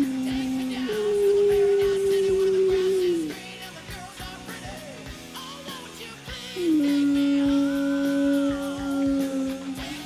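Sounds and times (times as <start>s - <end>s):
singer holding a long note: 0.0s - 3.6s, 6.5s - 10.0s
rock song: 0.0s - 10.0s.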